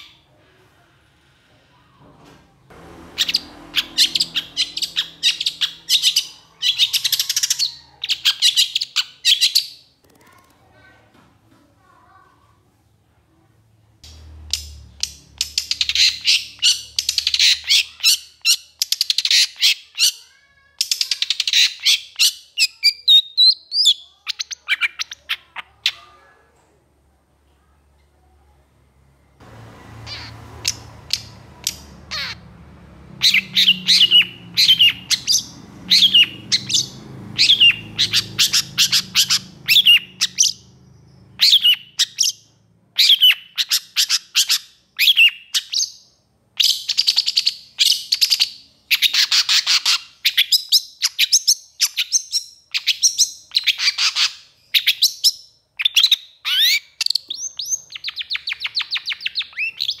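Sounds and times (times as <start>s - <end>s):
shrike calling: 3.0s - 9.0s, 29.9s - 32.5s, 33.2s - 42.2s.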